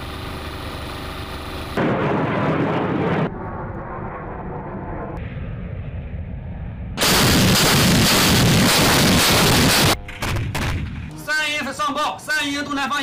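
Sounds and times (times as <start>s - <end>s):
artillery barrage: 1.8s - 3.4s, 7.0s - 11.2s.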